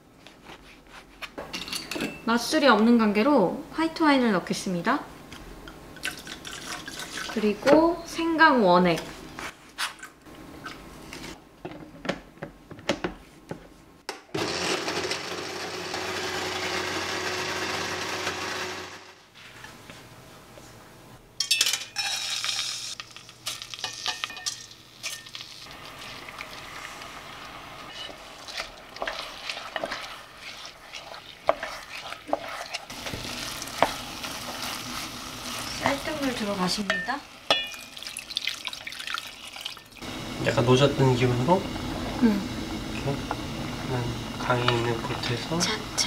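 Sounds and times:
blender running: 14.4 - 19.2
rice hissing in hot oil: 25.6 - 36.7
spatula scraping and knocking pot: 27.9 - 34.8.

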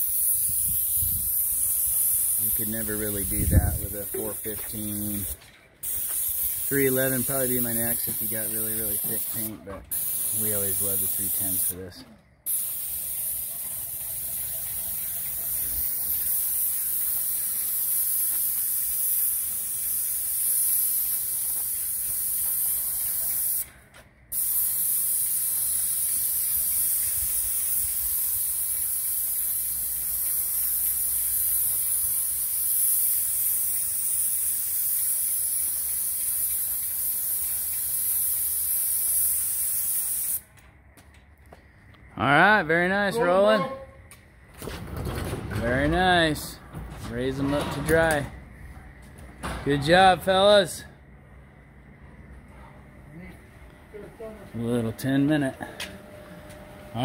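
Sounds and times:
paint spray gun hissing: 0.0 - 23.7, 24.3 - 40.5.

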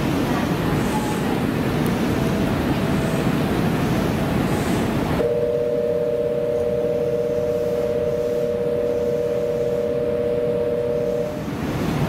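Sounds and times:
two-note electronic buzzer tone: 5.2 - 11.5.

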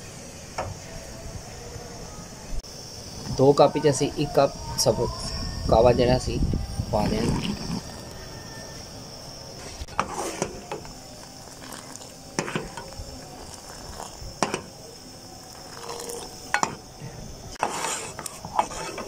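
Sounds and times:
tea pouring from ladle: 11.4 - 14.7, 15.6 - 16.7.

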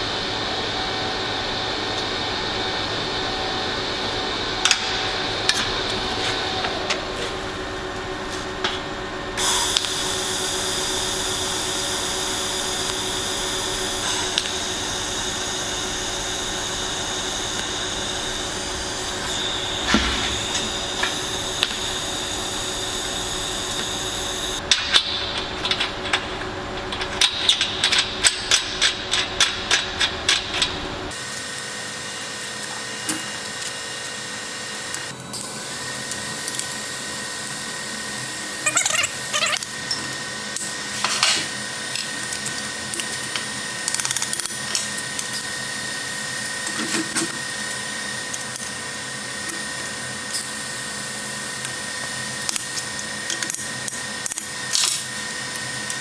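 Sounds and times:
steady high tone: 9.4 - 24.6
hissing welding arcs: 9.4 - 56.0.

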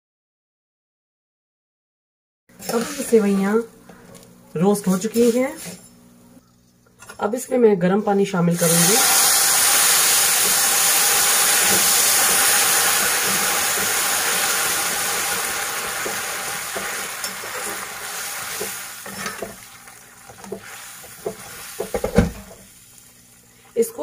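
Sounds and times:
water sizzling in hot oil: 8.6 - 24.0.

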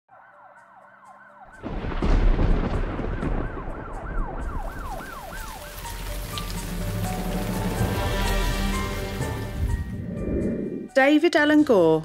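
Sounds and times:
emergency siren wailing: 0.1 - 9.4
thunder rumbling: 1.6 - 11.0
heavy rain hissing: 5.0 - 9.9.

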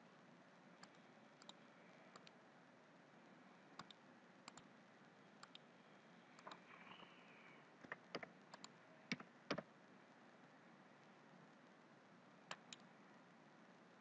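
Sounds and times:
low steady hiss: 0.0 - 14.0
computer mouse clicking: 0.8 - 2.4, 3.8 - 4.7, 5.4 - 5.7, 6.4 - 9.7, 12.5 - 12.9.

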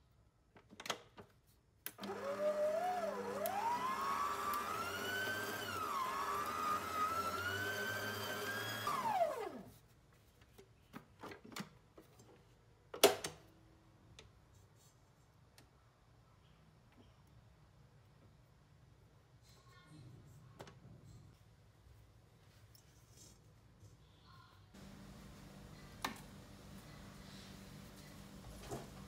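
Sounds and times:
stand mixer motor whine: 2.0 - 9.6.

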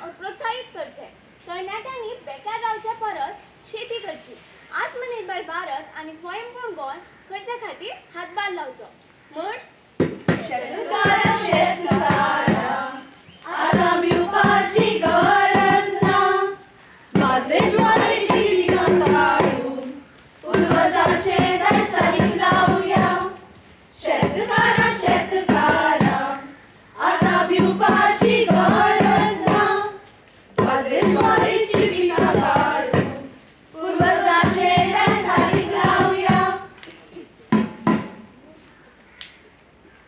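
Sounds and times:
hand drum beating: 10.0 - 12.8, 13.5 - 16.5, 17.2 - 19.8, 20.5 - 23.4, 24.0 - 26.4, 27.0 - 29.9, 30.6 - 33.3, 33.9 - 36.7, 37.5 - 38.4
group of voices singing: 10.3 - 36.8.

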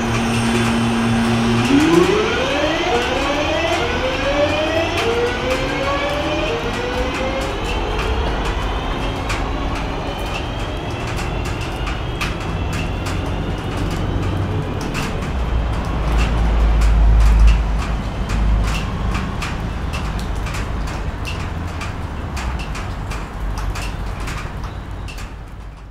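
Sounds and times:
electric train motor whine: 0.0 - 16.1
low train rumble: 0.0 - 25.9
rain drips clicking: 0.0 - 25.9.

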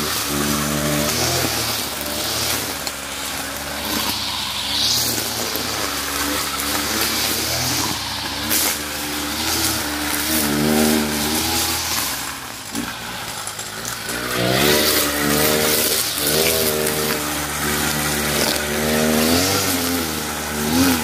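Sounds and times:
brush cutter cutting grass: 0.0 - 21.0.

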